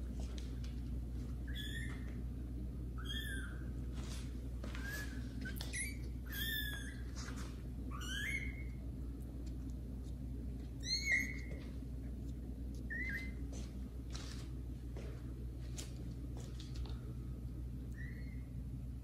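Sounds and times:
kittens meowing: 1.5s - 2.2s, 3.0s - 3.7s, 4.8s - 7.1s, 7.9s - 8.8s, 10.8s - 11.6s.

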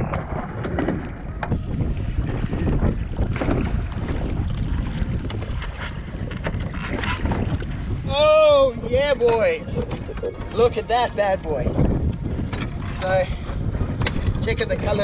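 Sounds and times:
wind buffeting microphone: 0.0s - 15.0s
water slapping against hull: 0.1s - 8.1s.

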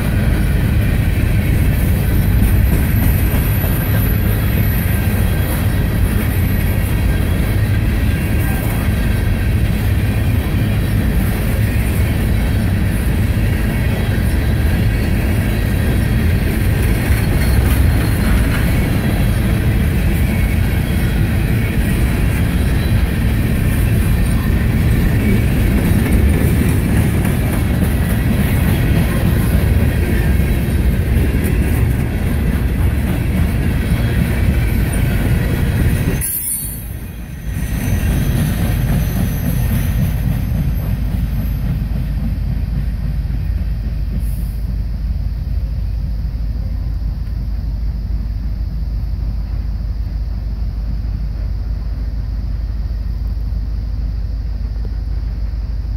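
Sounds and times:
high wheel squeal: 0.0s - 27.0s, 33.6s - 42.2s
train wheels rumbling on rail: 0.0s - 55.9s.

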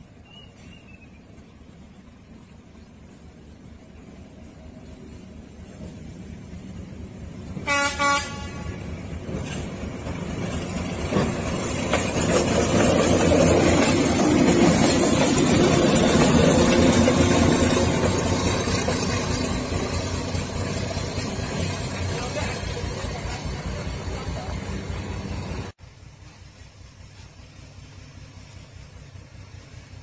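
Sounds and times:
locomotive engine passing: 0.0s - 30.0s
locomotive horn blasts: 7.6s - 8.9s.

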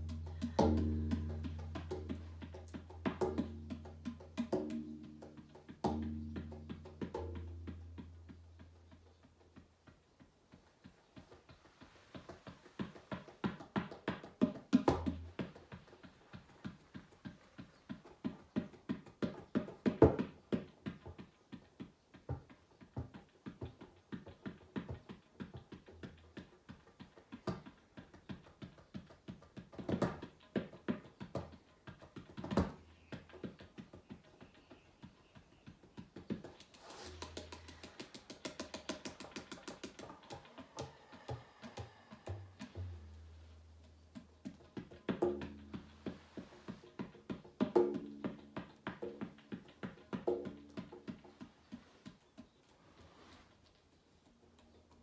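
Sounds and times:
tabla finger strokes: 0.0s - 10.0s, 27.4s - 54.7s.

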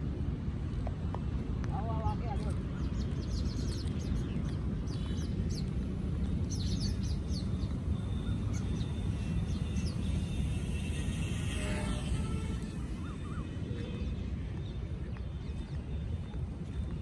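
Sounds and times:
wind rumble on microphone: 0.0s - 17.0s
small birds chirping: 1.7s - 11.6s.

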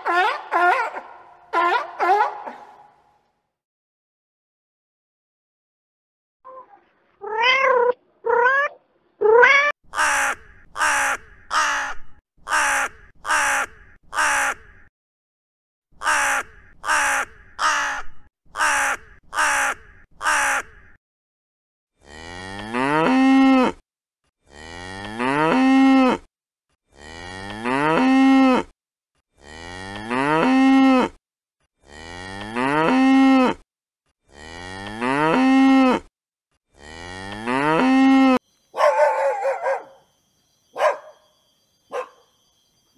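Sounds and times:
cat meowing: 7.2s - 9.8s
crow cawing: 9.9s - 14.9s, 16.0s - 21.0s
cattle mooing: 26.9s - 28.7s, 34.3s - 36.1s, 36.8s - 38.4s.

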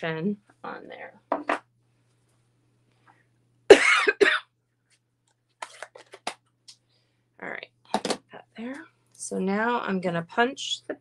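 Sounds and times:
woman coughing: 3.7s - 4.5s.

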